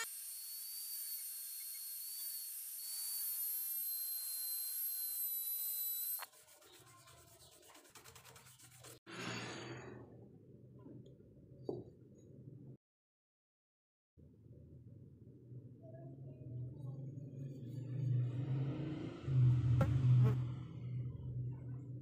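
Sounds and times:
rotary tool grinding steel: 0.0 - 7.5
stiff brush scrubbing steel: 6.2 - 9.1.

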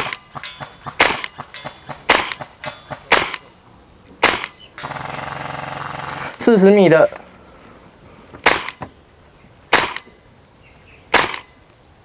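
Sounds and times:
airsoft rifle single shots: 0.0 - 3.5, 4.2 - 4.9, 8.4 - 8.9, 9.7 - 10.2, 11.1 - 11.6.

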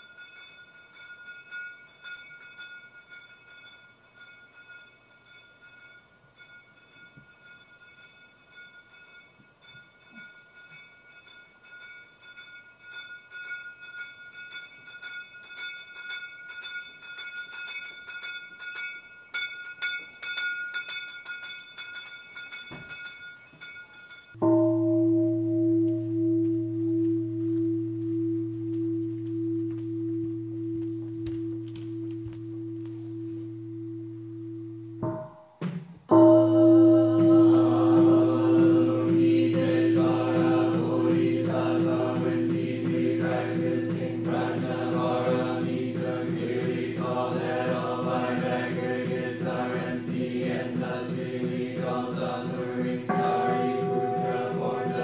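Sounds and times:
small hand bell rung rapidly: 0.0 - 24.4
large bowl bell ringing low: 0.0 - 35.3, 36.1 - 45.4, 53.1 - 55.0.

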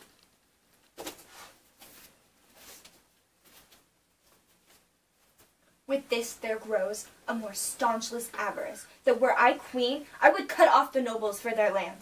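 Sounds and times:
paper pages rustling: 0.0 - 5.6.

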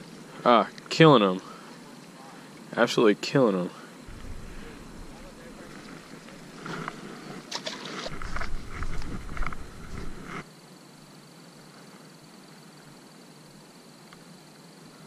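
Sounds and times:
outdoor hiss: 0.0 - 15.0
low rumble: 4.1 - 7.2
microphone handling noise: 4.1 - 10.5.

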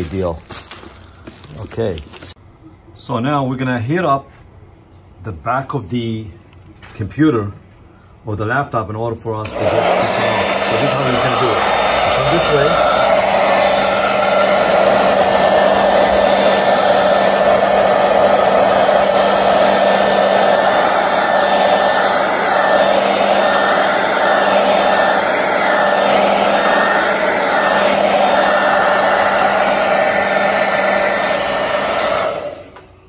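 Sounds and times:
hair dryer blowing: 0.0 - 1.8, 9.4 - 33.0.

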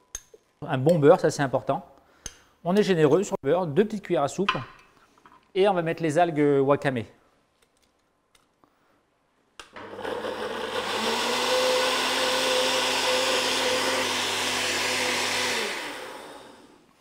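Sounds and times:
blender motor running: 9.7 - 16.9.

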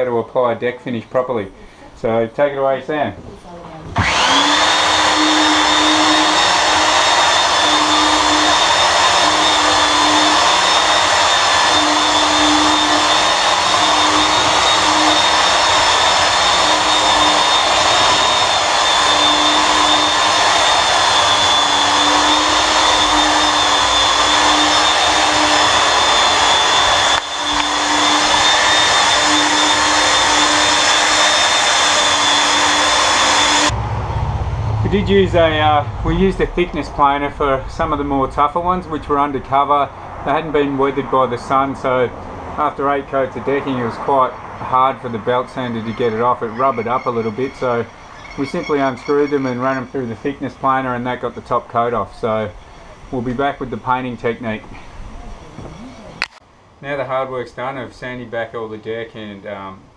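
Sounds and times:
belt sander whining: 3.8 - 56.4.

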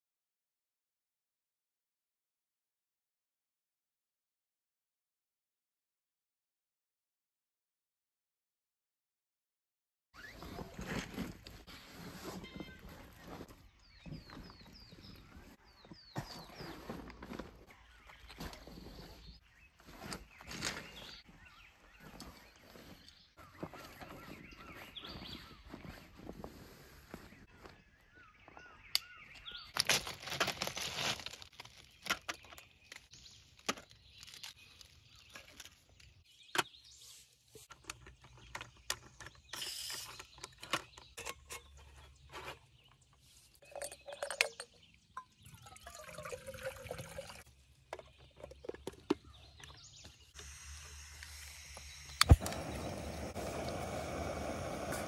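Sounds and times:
dry bag rustling: 29.8 - 32.1
stove parts clicking and clacking: 40.1 - 42.6
gas burner hissing: 50.4 - 55.0.

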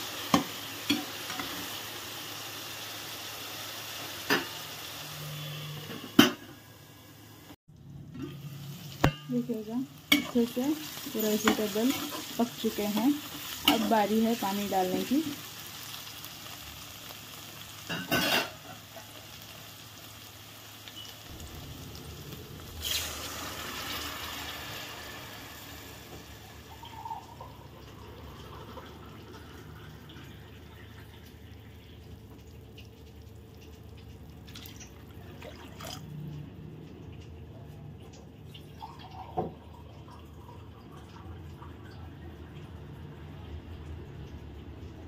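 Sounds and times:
water simmering in pan: 0.0 - 45.0
hot pan hissing: 19.4 - 27.4.

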